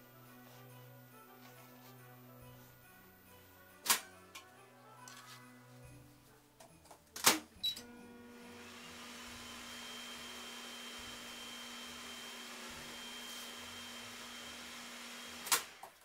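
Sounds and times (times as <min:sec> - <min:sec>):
microwave humming with fan noise: 0:07.6 - 0:12.1.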